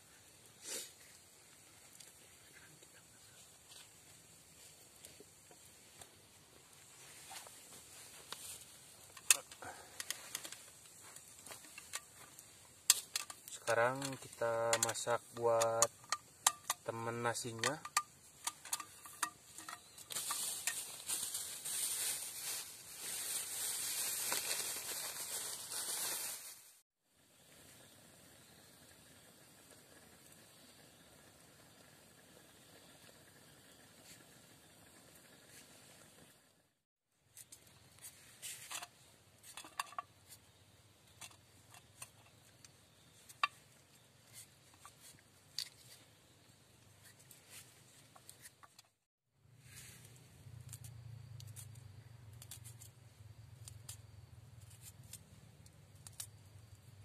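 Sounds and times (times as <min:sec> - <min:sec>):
campfire crackling: 0:00.0 - 0:26.7, 0:27.3 - 0:36.5, 0:37.2 - 0:48.9
steady high hiss: 0:00.0 - 0:33.0.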